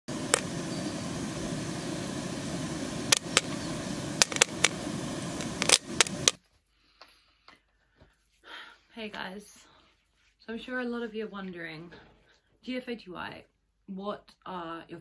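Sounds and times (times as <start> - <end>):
pan hissing: 0.0 - 6.4
popcorn popping: 0.1 - 6.4.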